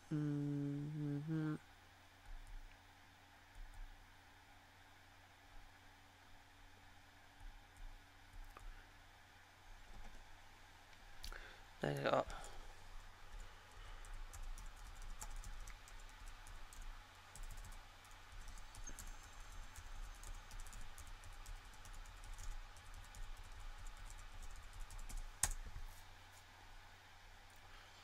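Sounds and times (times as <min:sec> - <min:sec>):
low electrical hum: 0:00.0 - 0:28.0
keyboard and mouse clicking: 0:13.3 - 0:25.6.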